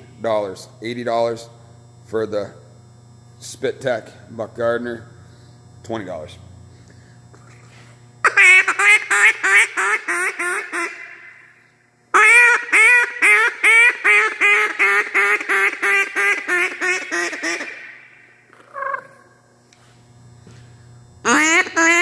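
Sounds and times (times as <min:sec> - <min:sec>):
duck call quacks: 0:08.2 - 0:11.2, 0:12.2 - 0:18.0, 0:21.3 - 0:22.0.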